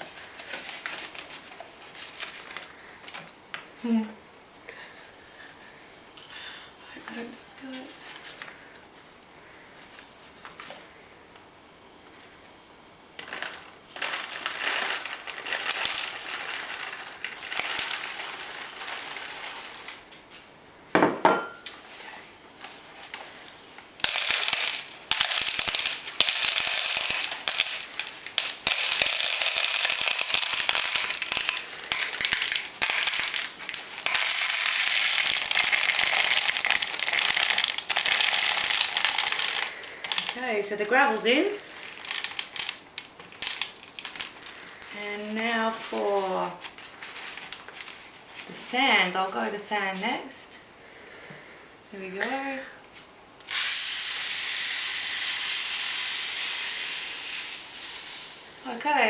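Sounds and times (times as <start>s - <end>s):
gravel rattling into plastic bottle: 13.2s - 20.0s, 24.0s - 45.0s.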